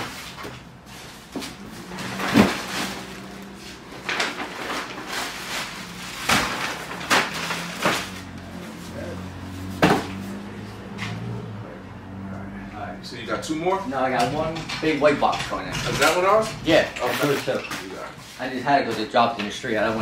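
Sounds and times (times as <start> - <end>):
cardboard packages knocking and thumping: 0.0 - 8.6, 9.6 - 10.2.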